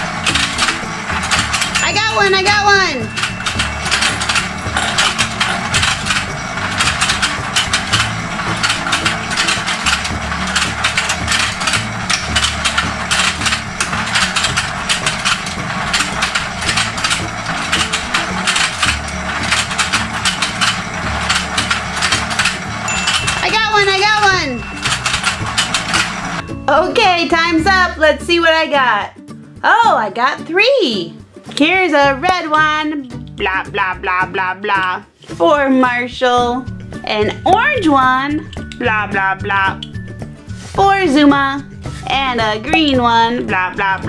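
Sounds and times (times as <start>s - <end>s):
toy gears clicking: 0.0s - 26.4s.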